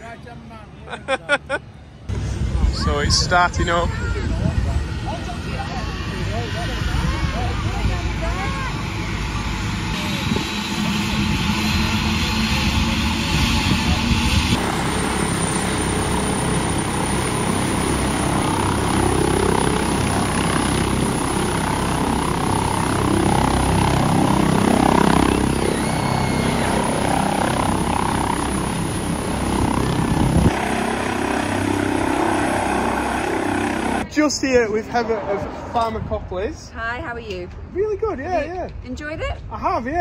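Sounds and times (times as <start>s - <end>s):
helicopter turbine and rotors: 1.6s - 40.0s.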